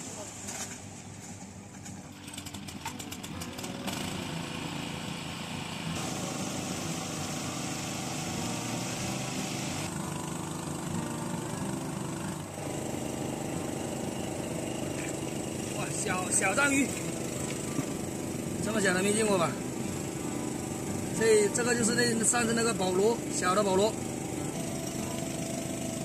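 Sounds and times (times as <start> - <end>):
pump engine running: 0.0 - 26.0
water rushing from outlet: 5.9 - 9.9.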